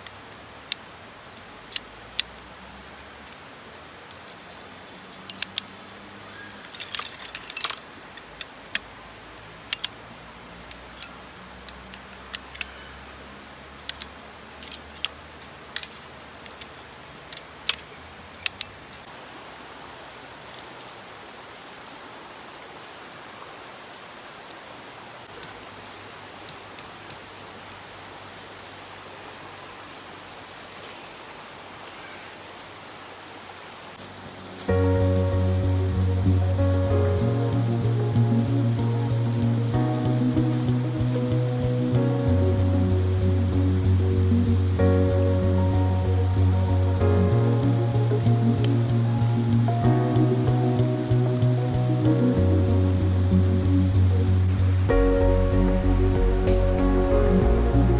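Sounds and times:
river rushing: 0:00.0 - 0:57.9
metal tent poles clinking: 0:06.6 - 0:08.8.

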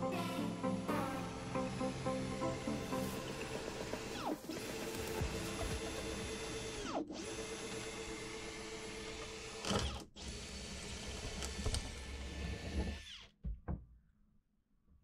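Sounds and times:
power drill boring plastic: 0:03.4 - 0:13.4.

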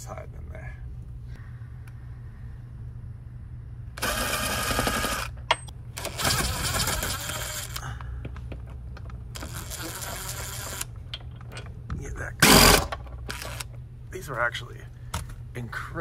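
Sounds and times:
impact driver rattling: 0:04.0 - 0:07.8.

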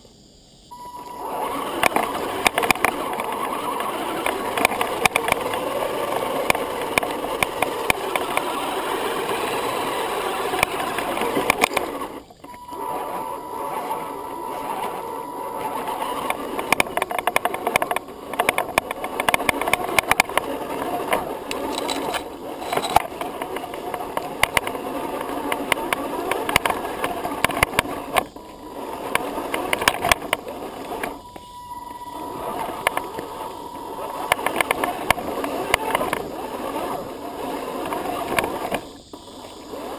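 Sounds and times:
rc car motor and gear whine: 0:00.0 - 0:39.9
stones crunching under tyres: 0:01.3 - 0:31.6.

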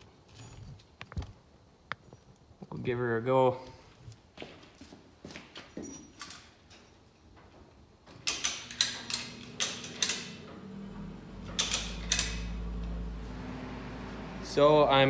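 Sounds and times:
chain and ratchet clicking: 0:08.2 - 0:10.4, 0:11.4 - 0:12.6.

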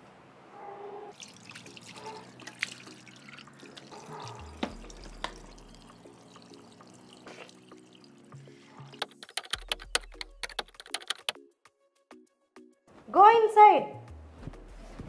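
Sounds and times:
tap water running into sink: 0:01.2 - 0:09.3
hands splashing water: 0:01.2 - 0:11.4
sharp clicks: 0:09.0 - 0:11.4.

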